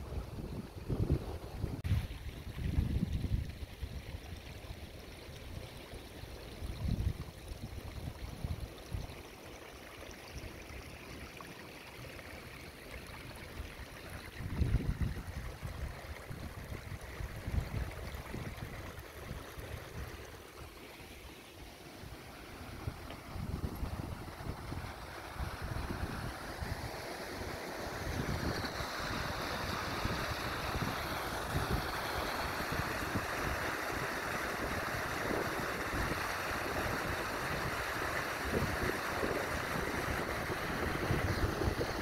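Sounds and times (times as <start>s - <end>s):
wind buffeting microphone: 0.0s - 3.7s, 14.4s - 20.1s, 22.8s - 26.9s, 28.1s - 33.7s, 34.5s - 42.0s
rainwater trickling through ditch: 0.0s - 42.0s.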